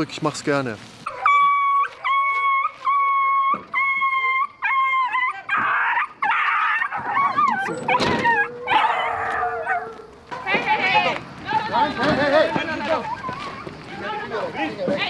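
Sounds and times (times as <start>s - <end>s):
dog whining and whimpering: 1.1s - 10.0s, 12.8s - 13.8s.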